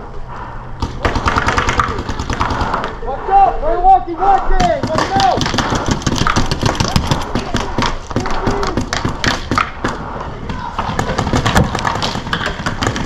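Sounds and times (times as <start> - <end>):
paint balls hitting: 0.8 - 2.9, 4.6 - 13.0
paintball markers firing: 0.8 - 2.9, 4.6 - 10.0, 10.8 - 13.0.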